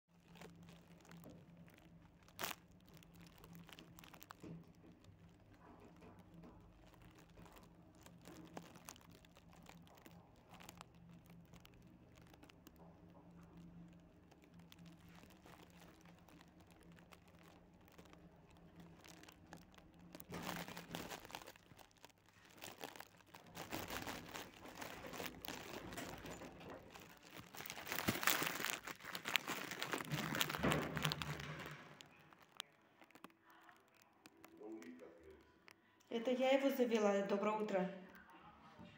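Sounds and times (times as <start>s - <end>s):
rustling and shuffling footsteps: 14.6s - 33.2s
faint clicks: 31.8s - 37.0s.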